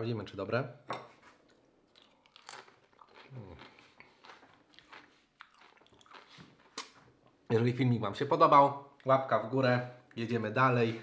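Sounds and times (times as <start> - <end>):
tortilla chip crunching: 2.0 - 7.0.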